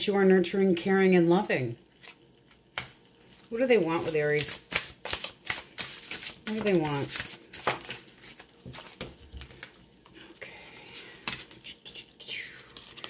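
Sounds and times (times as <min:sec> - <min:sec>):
cards being shuffled: 0:04.0 - 0:09.6.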